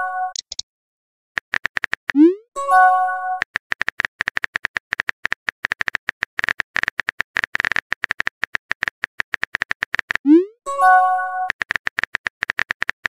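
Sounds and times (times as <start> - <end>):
typing clicks: 0.3 - 0.6, 1.4 - 2.4, 3.4 - 10.3, 11.4 - 13.0
rising bloop: 10.2 - 10.6.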